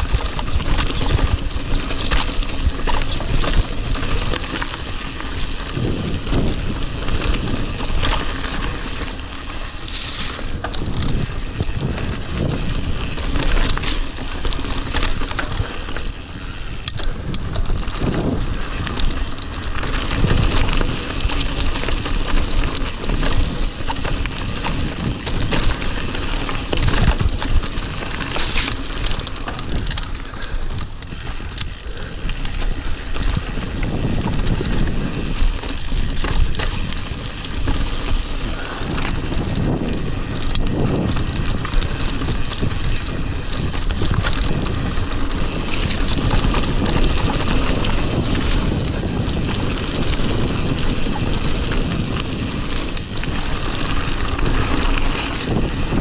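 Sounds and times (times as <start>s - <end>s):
bike clicks and rattles: 0.0s - 56.0s
bike tyres rolling on gravel: 0.0s - 56.0s
wind rushing over microphone: 0.0s - 56.0s.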